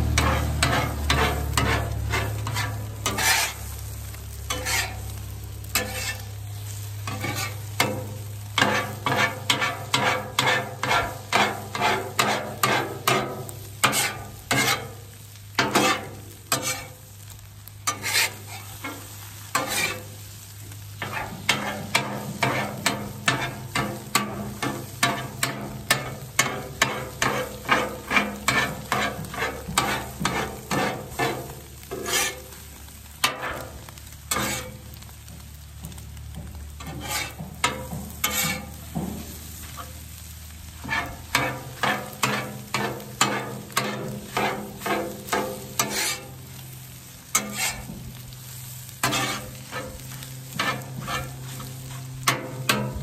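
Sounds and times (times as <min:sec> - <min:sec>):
eggs sizzling: 0:00.0 - 0:53.0
metal spatula scraping griddle: 0:00.0 - 0:53.0.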